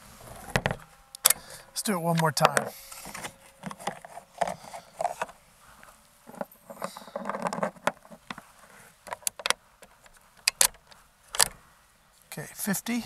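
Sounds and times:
handling rustle: 2.1s - 12.4s
airgun metallic clicks: 9.1s - 11.6s.

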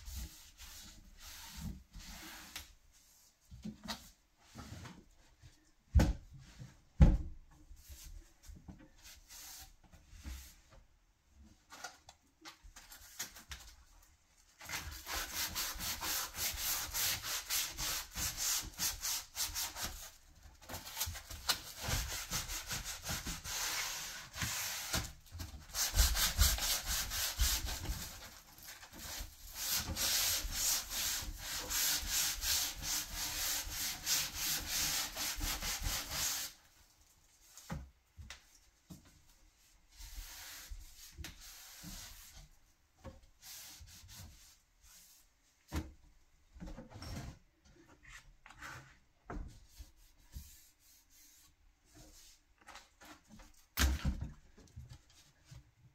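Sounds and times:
hand sanding wood: 14.7s - 20.1s, 21.5s - 36.6s.

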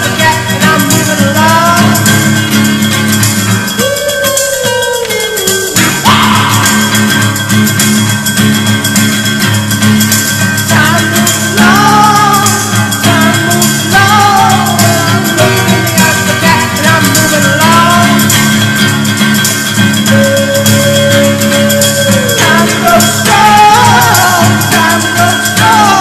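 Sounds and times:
person singing: 0.0s - 2.4s, 3.7s - 7.5s, 10.6s - 18.6s, 19.9s - 26.0s
guitar song: 0.0s - 26.0s.

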